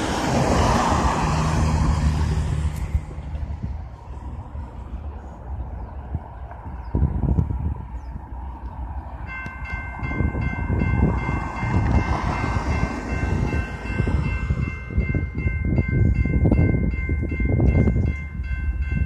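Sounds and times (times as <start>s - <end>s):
wind buffeting microphone: 0.0s - 19.0s
railroad crossing bell ringing: 9.2s - 19.0s.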